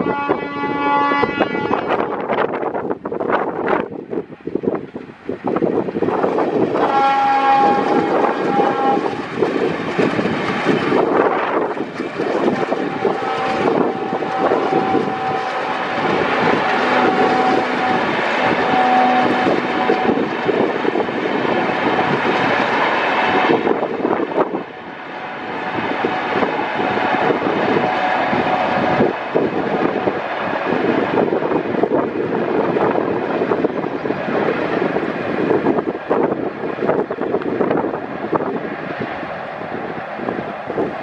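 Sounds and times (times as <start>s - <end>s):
locomotive horn: 0.0s - 2.5s, 6.7s - 9.4s, 12.4s - 30.3s
train rumbling past: 0.0s - 41.0s.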